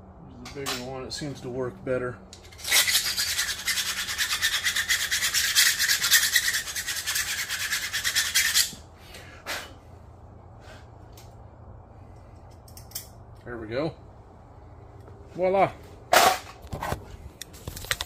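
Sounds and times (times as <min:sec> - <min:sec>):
hand file rasping: 0:02.6 - 0:08.8
short scrape: 0:09.4 - 0:09.8.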